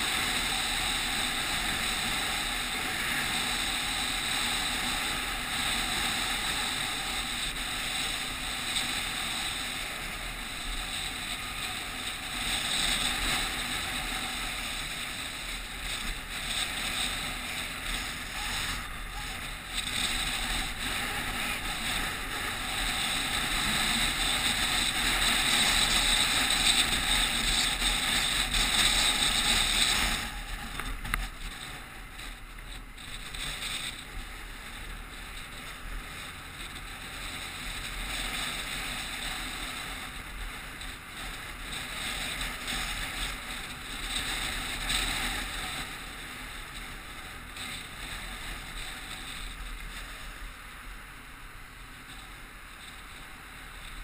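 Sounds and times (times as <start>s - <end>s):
wind and road noise rushing: 0.0s - 54.0s.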